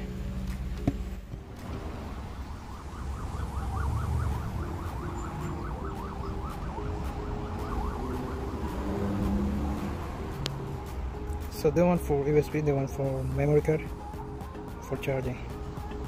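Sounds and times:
low traffic rumble: 0.0 - 16.0
emergency siren yelping: 1.7 - 10.2.

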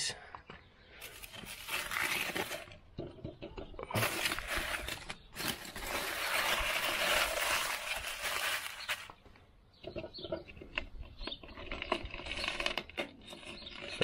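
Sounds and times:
aluminium foil crinkling: 1.0 - 2.8, 3.9 - 9.2.

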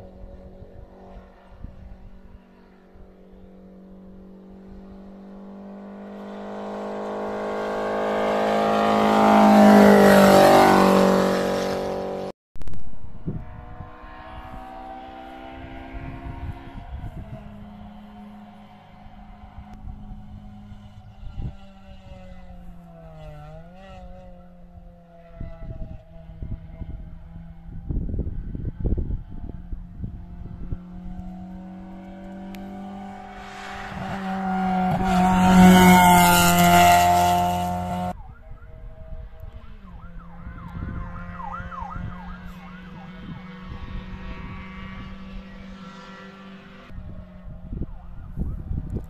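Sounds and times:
wind buffeting microphone: 0.0 - 3.2, 12.8 - 18.6, 19.3 - 45.6, 46.9 - 49.0
race car engine passing: 0.0 - 12.3, 13.0 - 49.0
distant engine revving: 3.0 - 12.3, 12.9 - 38.2, 39.2 - 47.9.

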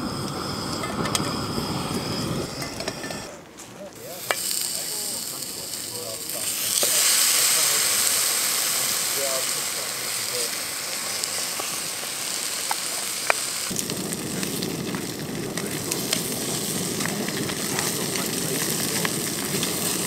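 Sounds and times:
gas burner hissing: 0.0 - 20.0
meat sizzling in a pan: 4.2 - 20.0.

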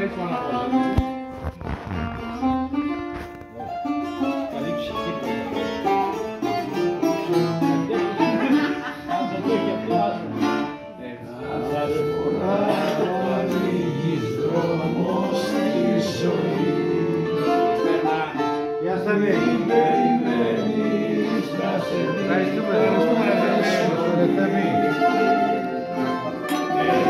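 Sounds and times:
bouzouki melodic runs: 0.0 - 27.0
strummed acoustic guitars: 0.0 - 27.0
man singing: 11.4 - 27.0.

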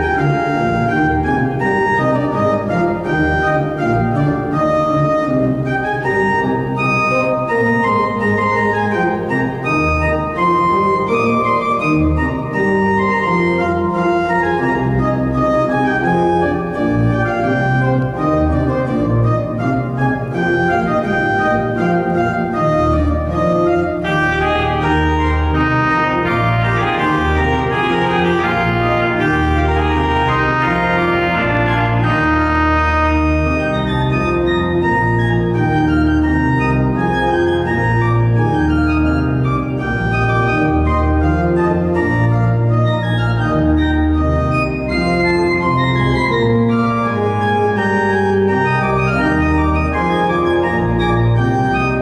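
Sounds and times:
church organ playing chords: 0.0 - 52.0.

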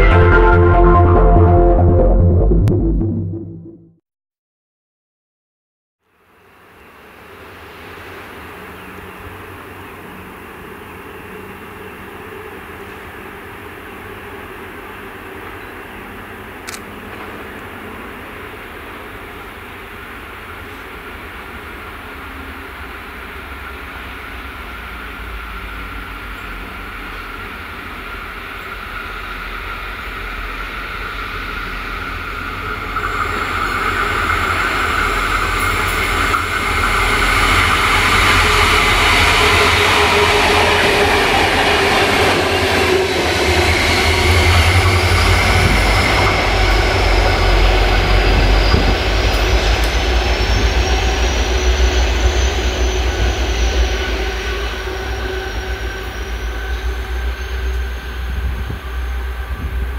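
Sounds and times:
locomotive engine rumble: 7.4 - 59.9
high wheel squeal: 23.6 - 59.9.

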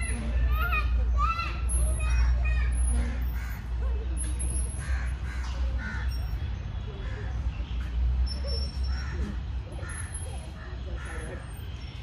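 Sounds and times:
crows cawing: 4.8 - 6.2, 8.9 - 11.4.

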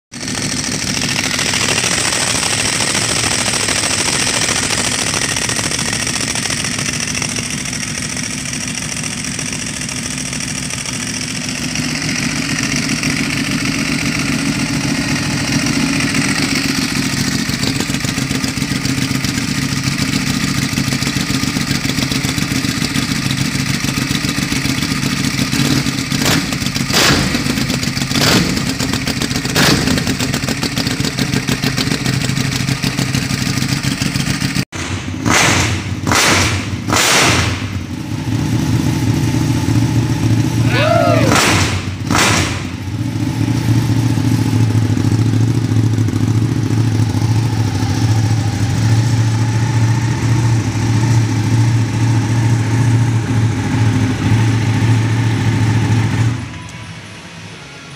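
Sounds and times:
engine revving bursts: 0.2 - 6.8, 25.5 - 30.4, 34.7 - 56.6
motorcycle engine idling: 0.2 - 57.0.

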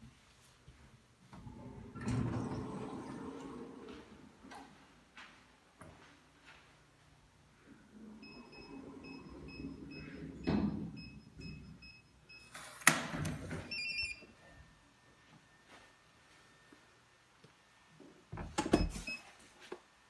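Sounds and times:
keypad beeping: 13.7 - 14.2.

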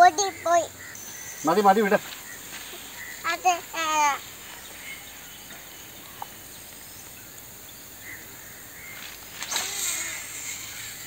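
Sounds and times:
insects chirring: 0.0 - 11.0
line running off reel: 8.4 - 11.0.

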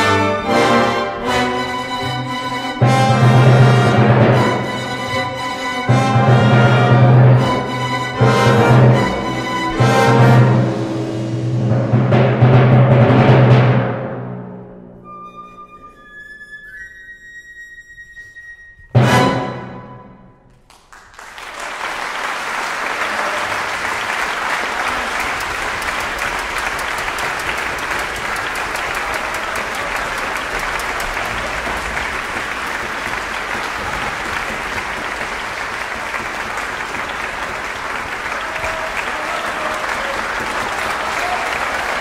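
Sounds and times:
audience applauding: 20.5 - 42.0.

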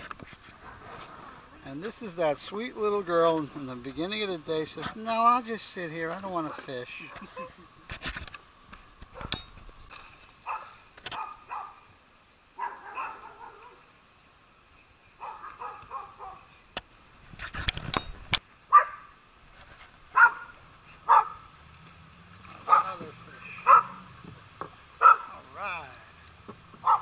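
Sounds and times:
dog barking: 10.4 - 11.8, 12.6 - 13.8, 15.2 - 16.5, 18.7 - 19.1, 20.1 - 21.4, 22.7 - 23.0, 23.6 - 24.0, 25.0 - 25.4.

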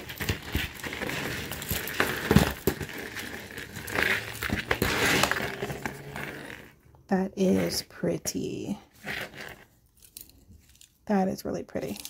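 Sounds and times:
rustling: 0.0 - 6.7
jewelry clicking and clinking: 0.0 - 6.8, 9.9 - 11.0.

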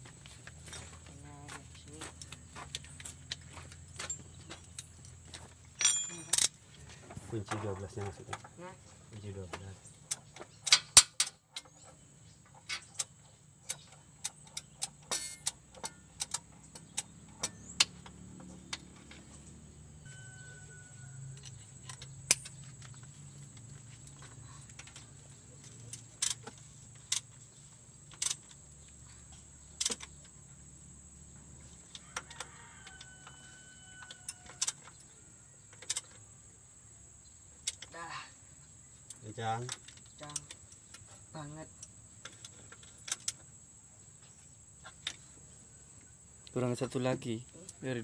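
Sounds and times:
metal hand tools clinking: 3.8 - 6.6.

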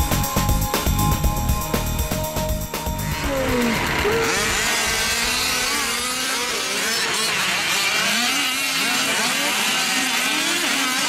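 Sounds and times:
small two-stroke engines revving: 2.8 - 11.0.

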